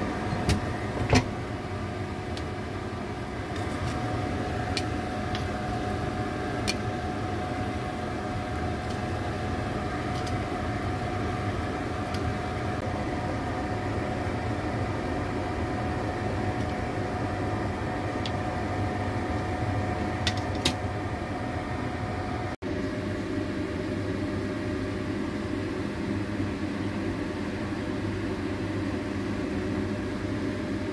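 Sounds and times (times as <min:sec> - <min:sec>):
appliance fan whirring hum: 0:00.0 - 0:30.9.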